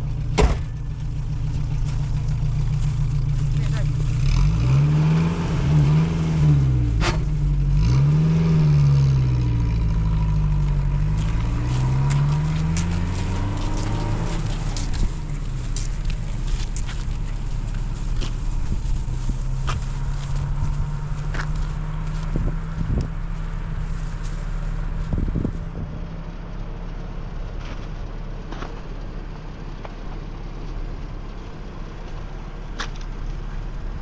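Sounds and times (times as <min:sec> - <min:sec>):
faint footsteps: 0:00.6 - 0:04.1, 0:11.0 - 0:25.7
car engine revving through gears: 0:04.1 - 0:23.7.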